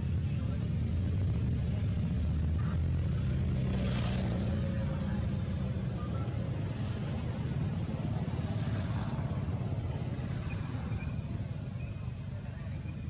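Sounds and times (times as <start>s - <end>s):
low outdoor rumble: 0.0s - 13.0s
faint high chirps: 10.4s - 13.0s.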